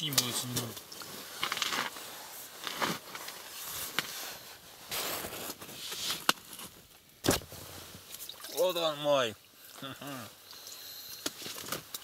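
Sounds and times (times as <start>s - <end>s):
rustling and scraping handling noise: 0.0s - 8.7s.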